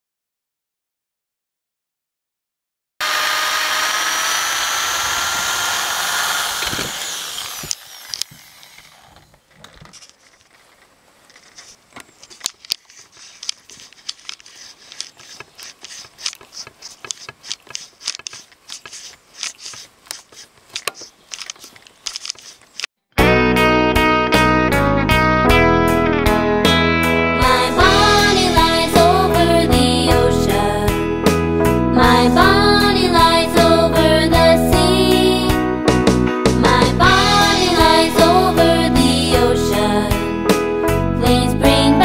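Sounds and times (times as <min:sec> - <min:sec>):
electric drill whining: 0:03.0 - 0:09.4
screwdriver clicks and scrapes: 0:06.4 - 0:10.6, 0:11.3 - 0:22.9
guitar music: 0:23.2 - 0:33.9.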